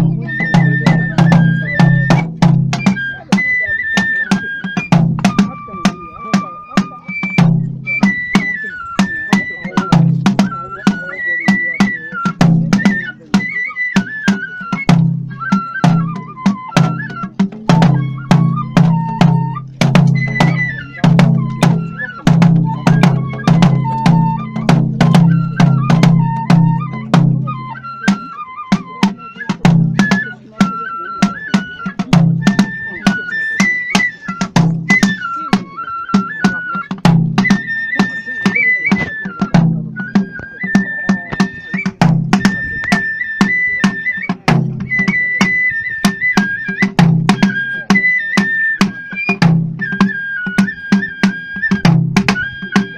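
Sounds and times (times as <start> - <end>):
bamboo flute melody: 0.0 - 52.9
percussion: 0.0 - 52.9
taiko drum strikes: 17.7 - 27.4.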